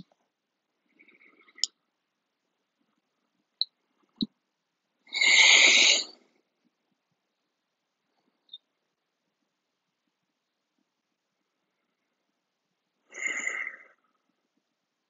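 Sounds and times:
loud breathy exhale: 0:13.1 - 0:14.0.

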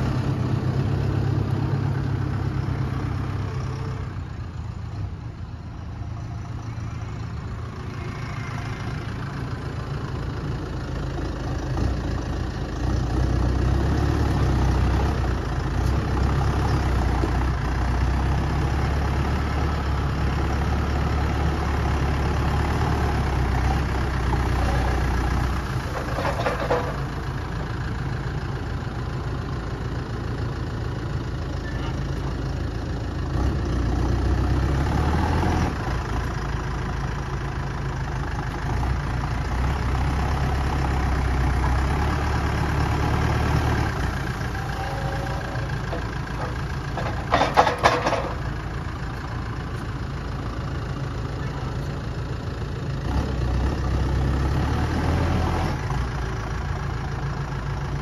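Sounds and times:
diesel tractor engine running: 0:00.0 - 0:58.0
loader clattering: 0:23.2 - 0:27.8, 0:43.3 - 0:52.3.

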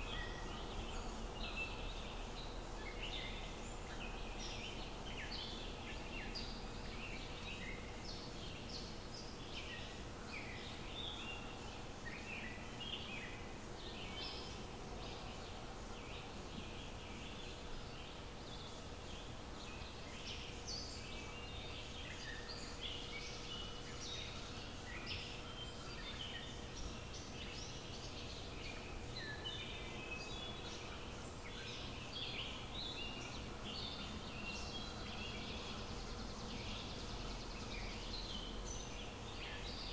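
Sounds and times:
faint steady hum: 0:00.0 - 0:39.9
small birds chirping and trilling: 0:00.0 - 0:39.9.

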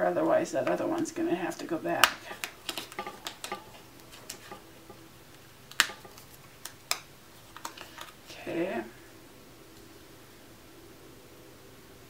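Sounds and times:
sharp paper clicks: 0:02.0 - 0:04.6, 0:05.7 - 0:08.2
paper ticks and rustles: 0:02.0 - 0:05.0, 0:05.7 - 0:08.2.

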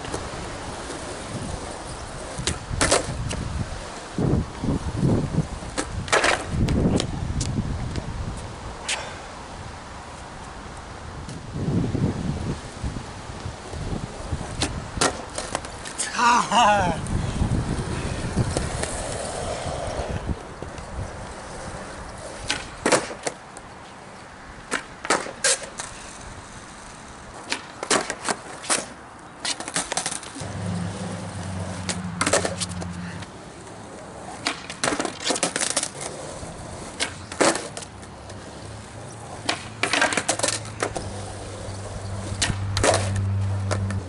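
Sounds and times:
skateboard wheels rolling: 0:00.0 - 0:44.0
skateboard tail pops and landings: 0:02.3 - 0:03.4, 0:05.7 - 0:07.1, 0:14.5 - 0:16.0, 0:22.4 - 0:23.4, 0:24.7 - 0:25.9, 0:27.4 - 0:30.5, 0:31.6 - 0:32.8, 0:34.3 - 0:36.2, 0:36.9 - 0:37.9, 0:39.4 - 0:41.0, 0:42.4 - 0:44.0.

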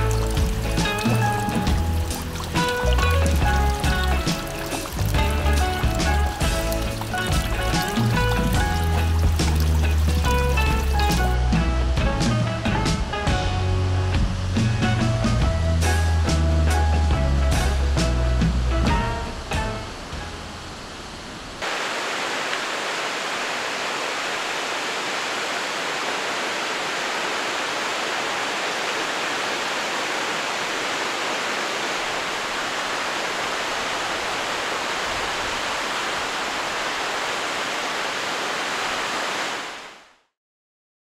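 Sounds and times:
waterfall rushing: 0:00.0 - 0:11.5, 0:18.9 - 0:40.1.

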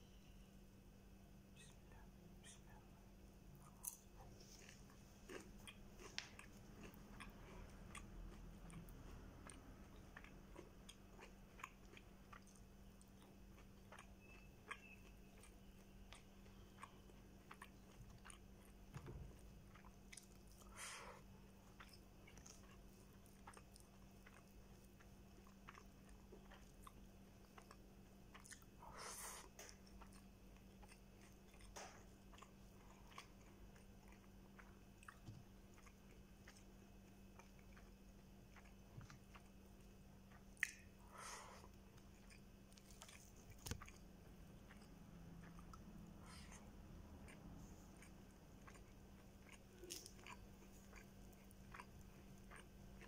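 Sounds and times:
person chewing food: 0:01.6 - 0:53.0
wet mouth clicks: 0:40.3 - 0:41.4.

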